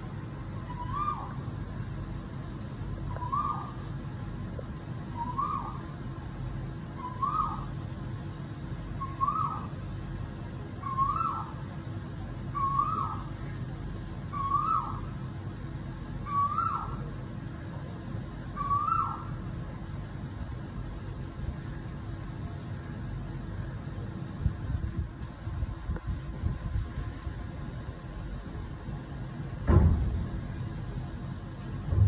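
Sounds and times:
bird two-part rising call: 0.6 - 1.4, 3.1 - 3.8, 5.2 - 5.9, 7.0 - 7.8, 9.0 - 9.8, 10.8 - 11.6, 12.6 - 13.4, 14.3 - 15.2, 16.2 - 17.1, 18.5 - 19.4.

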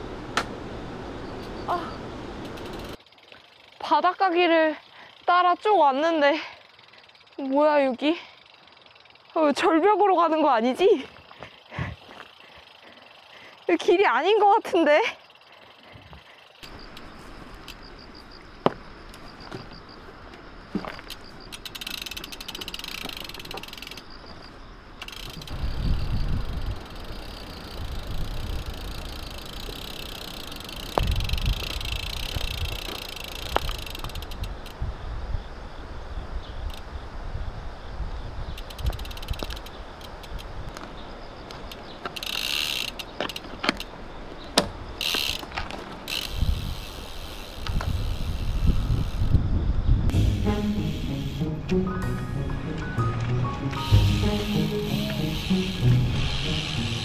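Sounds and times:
bicycle freewheel ticking: 2.4 - 19.4, 20.8 - 24.3, 24.9 - 34.9, 36.6 - 36.9, 38.5 - 40.8, 41.4 - 44.0, 44.6 - 49.5, 50.1 - 51.5, 53.8 - 57.0.

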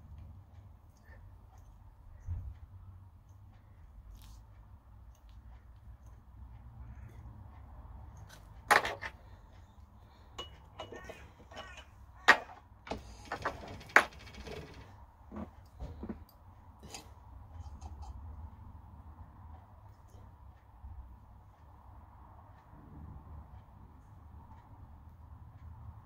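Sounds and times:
metal tools clinking and tapping: 10.3 - 14.8.

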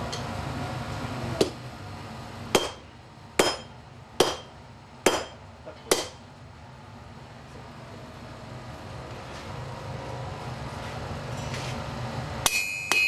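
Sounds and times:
sledgehammer striking hot steel: 2.5 - 6.2, 12.4 - 13.0.

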